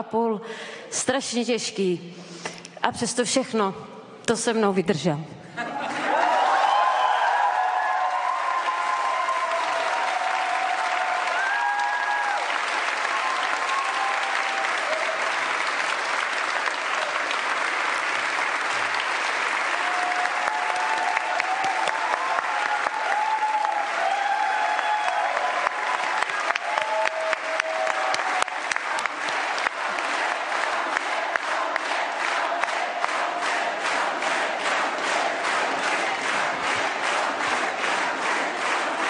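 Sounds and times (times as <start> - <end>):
crowd applauding: 5.9 - 39.0.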